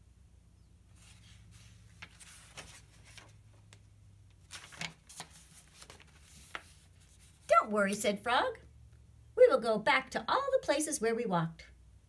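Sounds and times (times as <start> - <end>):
book pages turning: 0.9 - 8.1.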